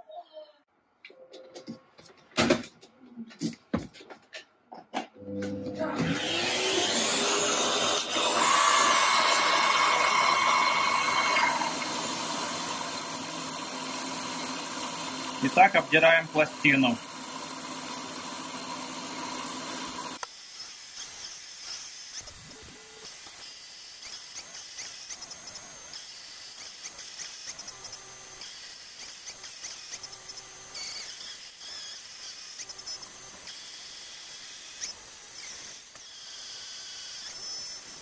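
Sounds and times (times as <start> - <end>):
milling machine whine: 6.8 - 20.2
faint high-pitched scraping: 10.9 - 20.2.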